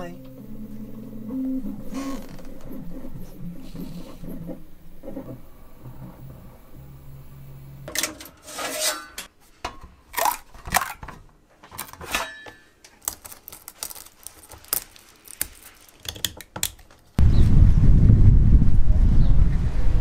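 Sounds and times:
printer humming: 0.2 - 8.0
plastic clicks and snaps: 12.8 - 17.2.

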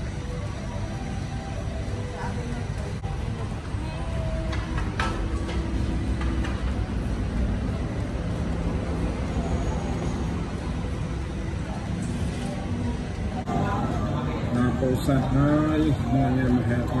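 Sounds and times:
road traffic rumble: 0.0 - 17.0
engines passing: 2.9 - 17.0.

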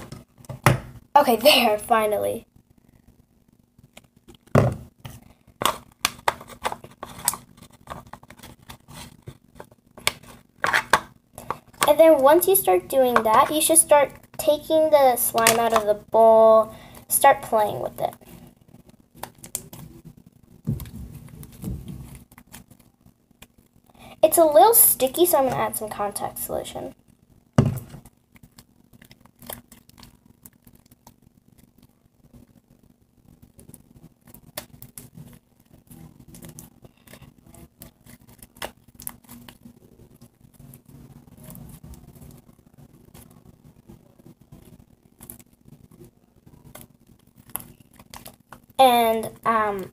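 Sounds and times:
slime clicking and crackling: 28.0 - 32.6, 33.3 - 42.5, 44.6 - 46.0, 46.6 - 48.8.

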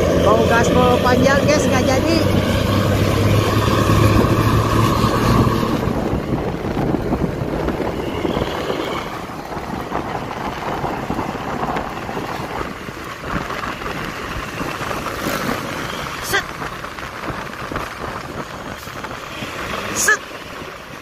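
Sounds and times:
road and wind noise: 0.0 - 21.0
vehicle engine drone: 0.0 - 21.0.

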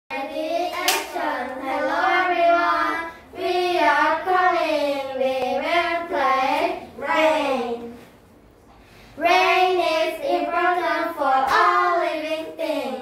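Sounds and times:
children singing: 0.2 - 8.0.

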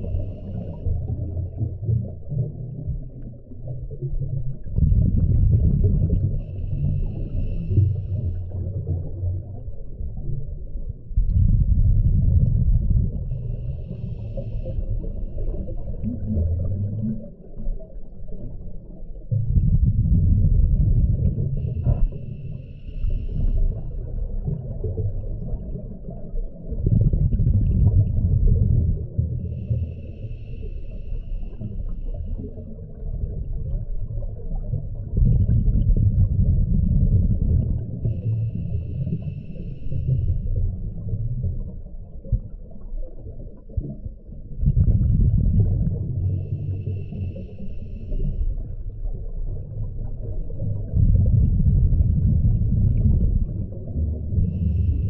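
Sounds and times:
regulator hiss on inhale: 0.0 - 1.0, 6.3 - 8.6, 13.3 - 15.9, 21.5 - 24.0, 29.4 - 32.6, 38.0 - 40.7, 46.2 - 48.9, 54.4 - 55.0
rumble of exhaled bubbles: 0.0 - 55.0.

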